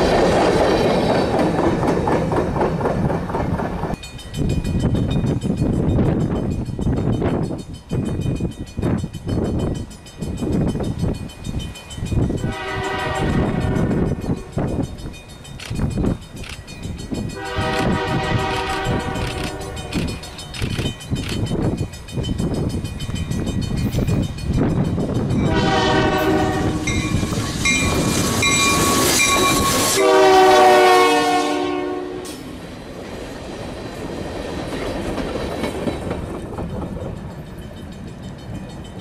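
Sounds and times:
train rumbling and clattering: 0:00.0 - 0:39.0
locomotive air horn: 0:12.4 - 0:14.0, 0:17.4 - 0:20.1, 0:25.4 - 0:27.1, 0:28.7 - 0:32.4.

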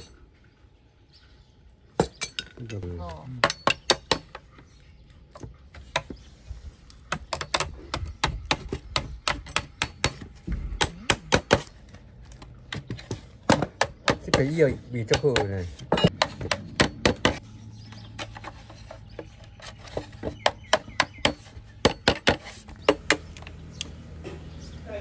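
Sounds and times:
person speaking: 0:02.5 - 0:03.6, 0:14.1 - 0:15.9.

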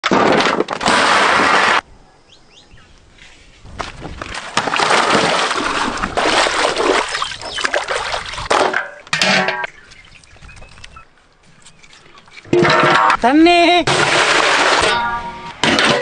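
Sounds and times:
water splashing in a basin: 0:04.1 - 0:08.9.

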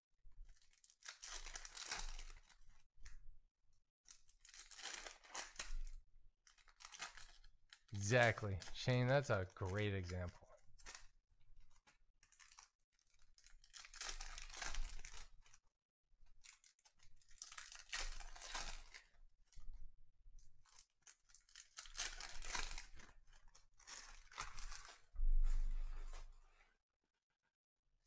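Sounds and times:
foil wrappers crinkling: 0:00.6 - 0:02.7, 0:04.1 - 0:10.2, 0:12.2 - 0:15.5, 0:16.4 - 0:19.1, 0:20.8 - 0:26.2.

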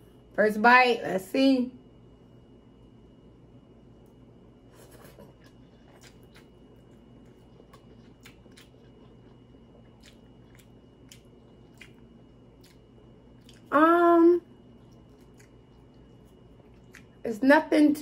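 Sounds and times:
person chewing noodles: 0:04.7 - 0:13.7, 0:14.6 - 0:17.2.

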